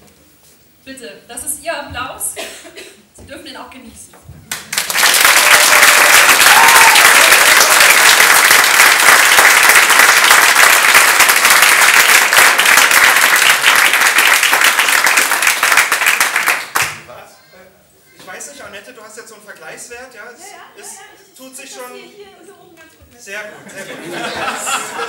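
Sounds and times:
audience clapping: 0:04.5 - 0:17.1.

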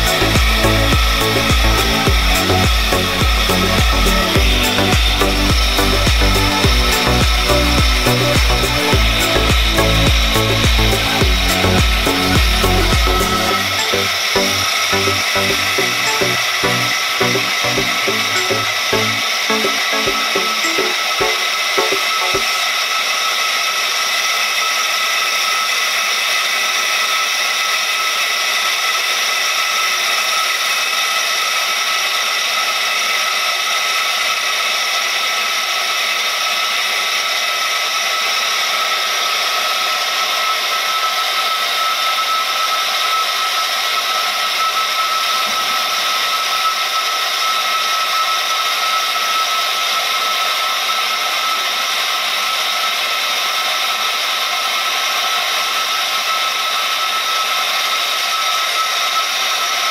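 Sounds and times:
high-pitched whine: 0:00.0 - 0:29.0, 0:38.2 - 0:51.9
inverter whir: 0:00.0 - 0:59.9.

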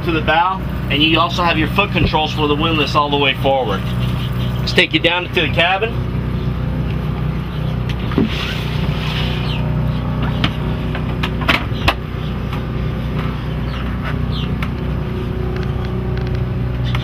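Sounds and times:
generator humming: 0:00.0 - 0:17.0.

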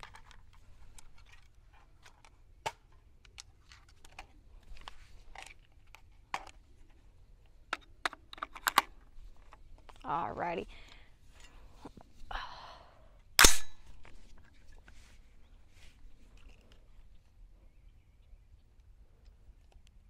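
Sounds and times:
rifle handling clicks: 0:07.7 - 0:10.0, 0:13.4 - 0:14.4.

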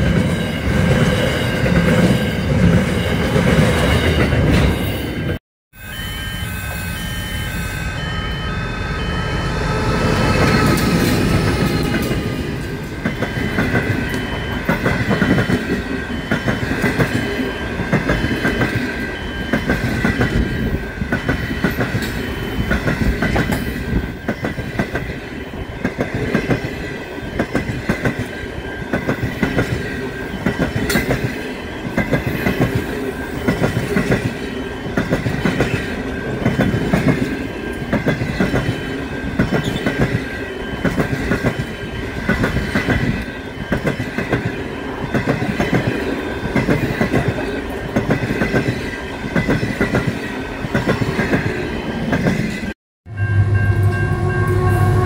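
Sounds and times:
train wheels clattering over rail joints: 0:39.4 - 0:40.2.

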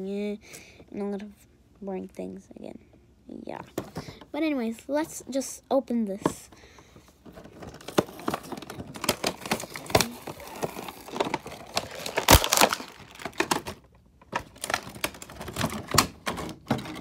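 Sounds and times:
plastic packaging crinkling and snapping: 0:07.2 - 0:17.0.

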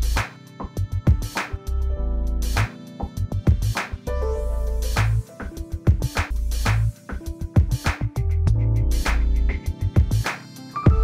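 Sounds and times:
background music with drums and bass: 0:00.0 - 0:11.0.

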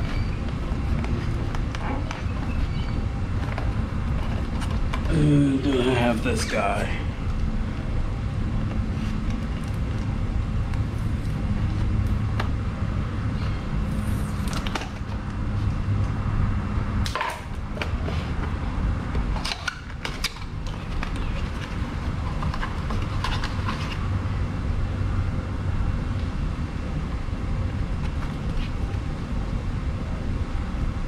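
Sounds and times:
steady low rumble: 0:00.0 - 0:19.3.

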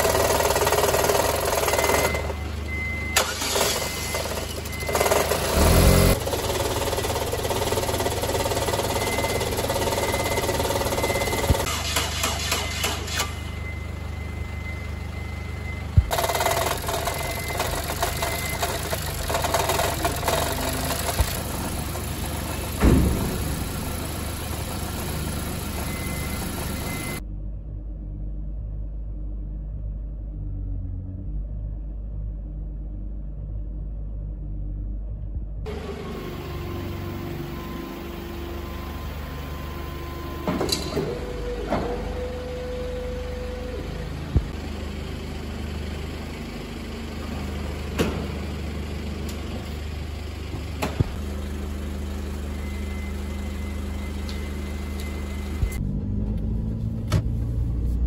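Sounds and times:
car engine idling: 0:00.0 - 0:27.2, 0:41.1 - 0:58.0
clunks and knocks: 0:22.8 - 0:23.6.

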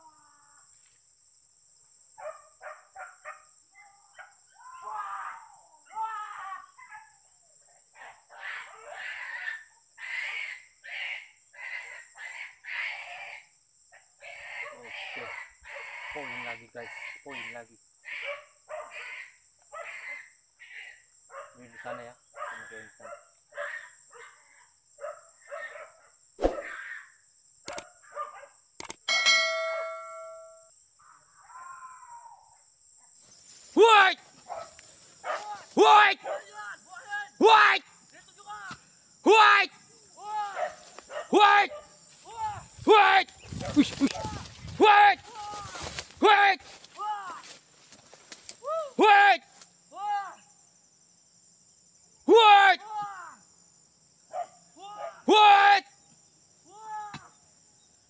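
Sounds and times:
dogs barking and yelping: 0:02.2 - 0:04.6, 0:06.8 - 0:07.2, 0:18.1 - 0:20.2, 0:21.3 - 0:26.7, 0:27.7 - 0:28.6, 0:40.5 - 0:42.0
short harsh animal calls: 0:26.4 - 0:27.1
sharp clicks: 0:27.6 - 0:27.9, 0:28.8 - 0:29.1
ringing bell chime: 0:29.1 - 0:30.7.

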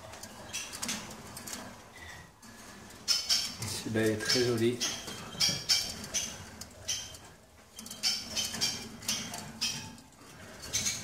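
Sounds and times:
finches chirping: 0:03.1 - 0:07.2.

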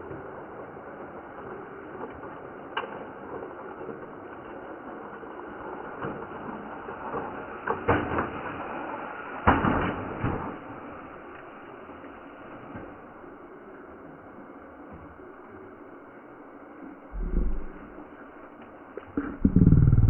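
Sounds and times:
steady background hiss: 0:04.2 - 0:20.0.

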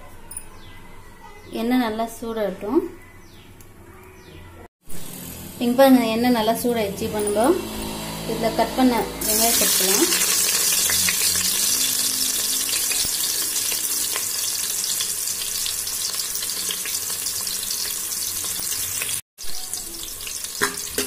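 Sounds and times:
onions sizzling in hot oil: 0:09.2 - 0:21.0.

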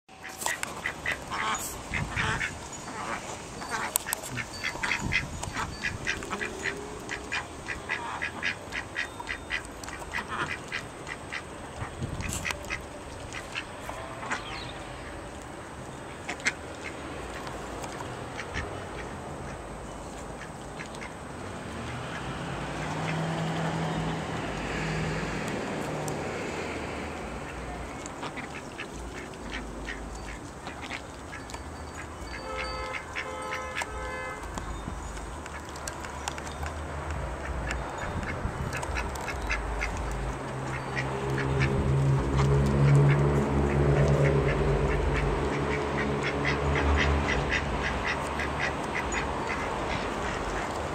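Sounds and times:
ducks quacking: 0:00.1 - 0:15.2, 0:16.2 - 0:19.6, 0:20.3 - 0:34.4, 0:37.4 - 0:50.9
duck bills clicking: 0:03.1 - 0:11.4, 0:28.0 - 0:50.9.

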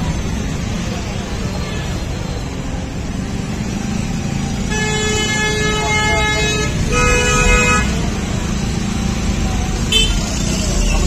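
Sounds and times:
road traffic rumble: 0:00.0 - 0:11.0
vehicle horn honking: 0:04.7 - 0:08.0, 0:09.9 - 0:10.4.

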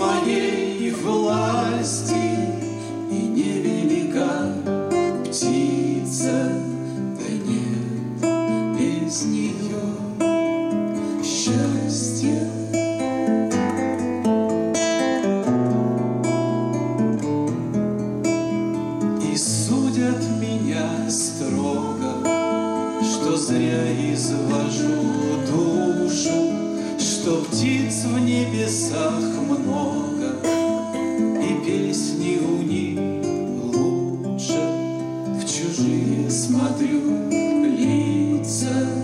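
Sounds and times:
woman singing: 0:00.0 - 0:02.6, 0:19.8 - 0:32.2
acoustic guitars strumming: 0:00.0 - 0:39.0.

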